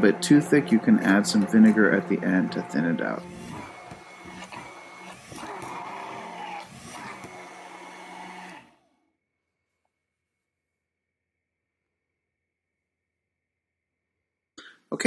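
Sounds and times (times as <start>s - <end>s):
stick blender running in jar: 0.0s - 9.1s.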